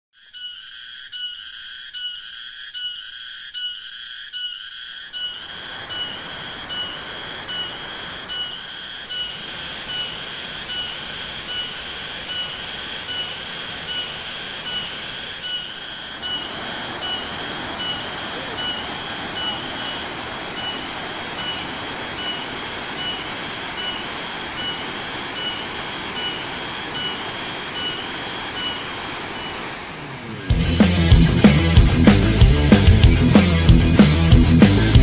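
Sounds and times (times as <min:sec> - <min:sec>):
high-pitched pulsing call: 0:00.2 - 0:30.5
river rapids rushing: 0:09.3 - 0:30.6.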